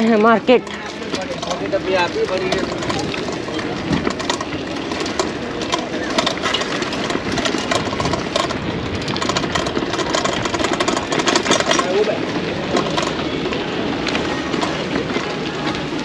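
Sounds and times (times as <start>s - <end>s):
constant fast rattling: 0.0s - 16.0s
passing traffic: 0.0s - 16.0s
background voices: 10.7s - 16.0s.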